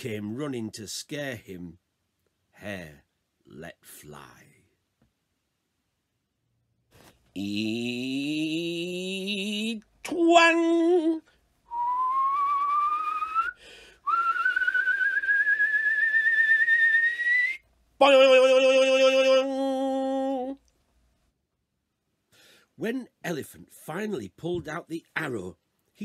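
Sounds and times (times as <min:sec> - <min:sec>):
man making vocal sound effects: 0:07.4 - 0:11.2, 0:18.0 - 0:20.6.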